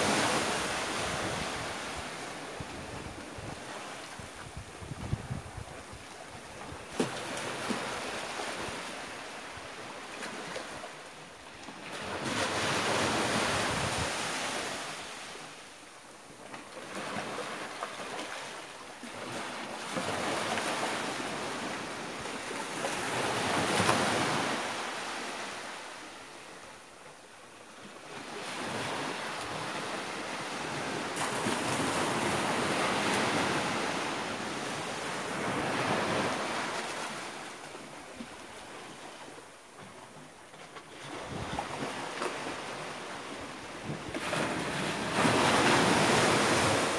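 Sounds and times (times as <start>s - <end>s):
small waves breaking on beach: 0.0s - 15.8s, 16.5s - 26.8s, 27.6s - 46.9s.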